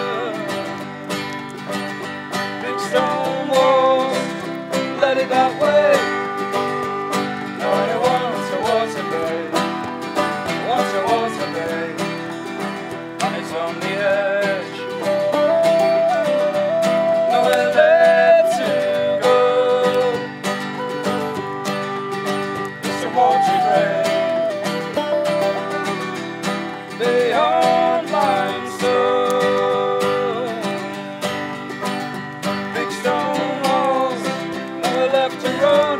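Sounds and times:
banjo picking: 0.0s - 35.9s
guitar picking: 0.0s - 35.9s
wind instrument melody: 0.0s - 35.9s.

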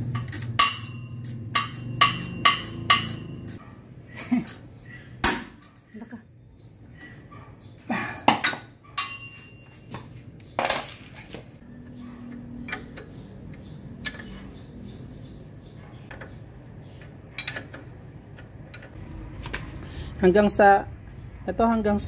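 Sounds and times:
wrench clinking on metal: 0.0s - 3.6s, 17.3s - 17.9s.

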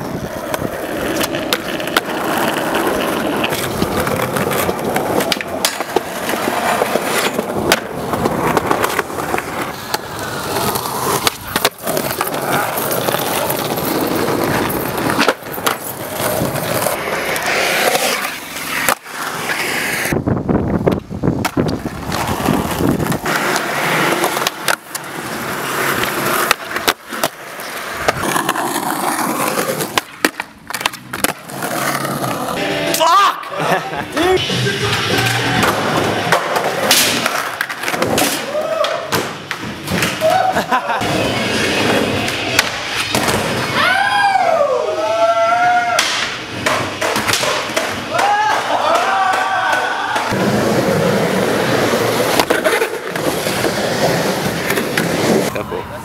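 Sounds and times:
skateboard wheels rolling on concrete: 0.0s - 56.0s
skateboard clacks popping and landing: 0.2s - 17.5s, 20.7s - 25.1s, 25.9s - 32.3s, 46.0s - 51.1s, 51.8s - 53.8s.

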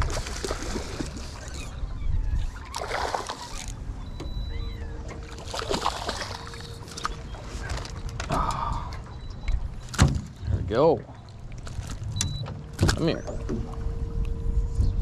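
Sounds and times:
low rumble of wind and water: 0.0s - 15.0s
fish splashing at water surface: 5.3s - 7.1s.

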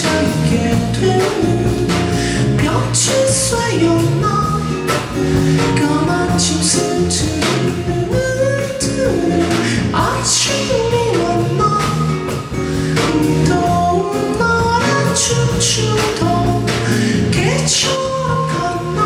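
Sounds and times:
man singing into microphone: 0.0s - 4.8s, 5.5s - 19.0s
acoustic band playing: 0.0s - 19.0s.

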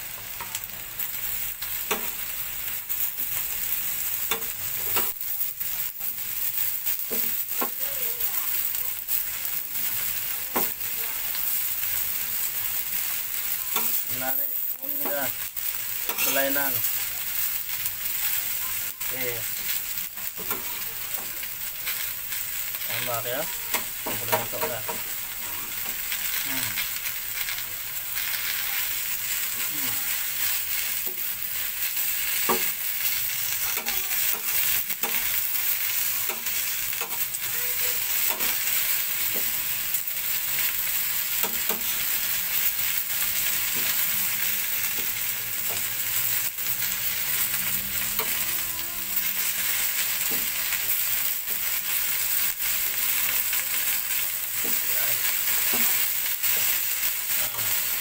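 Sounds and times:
greens sizzling on grill plate: 0.0s - 58.0s.

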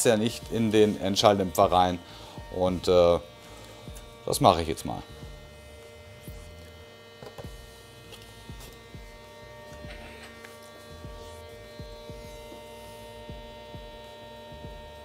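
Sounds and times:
welding machine humming: 0.0s - 15.0s.

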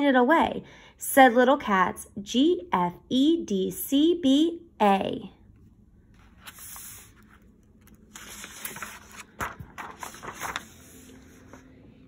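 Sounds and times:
book pages turning: 6.1s - 12.0s.

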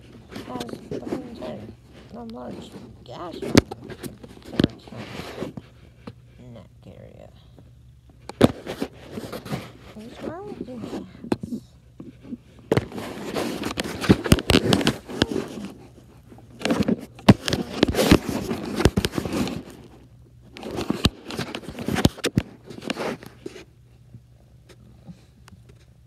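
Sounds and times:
microphone rubbing against fur: 0.0s - 7.1s, 8.4s - 20.0s.

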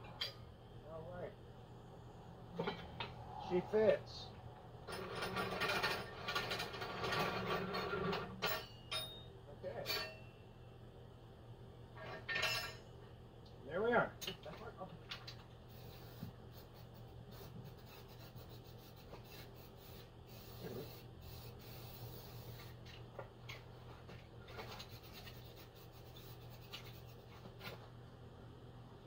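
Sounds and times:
faint low hum: 0.0s - 7.6s.

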